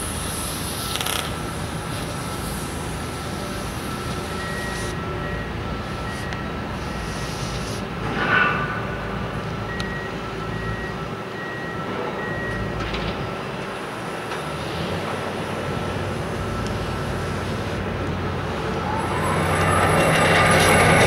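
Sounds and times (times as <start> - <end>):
heavy construction machinery running: 0.0 - 21.0.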